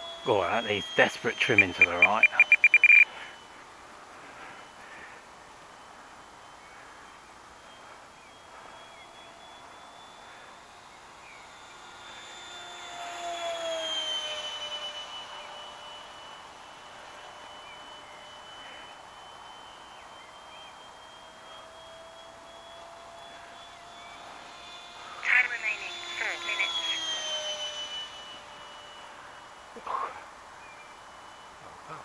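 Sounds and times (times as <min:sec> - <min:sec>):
electric ducted fan whining: 0:00.0 - 0:32.0.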